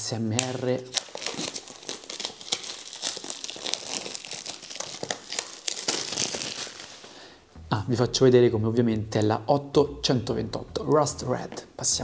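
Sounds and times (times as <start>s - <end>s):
plastic wrapping crinkling and tearing: 0.2s - 7.2s.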